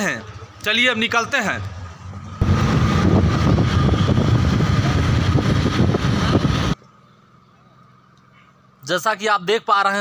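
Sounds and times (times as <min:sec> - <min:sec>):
loud road noise: 0:00.0 - 0:08.9
wind on microphone: 0:02.4 - 0:06.8.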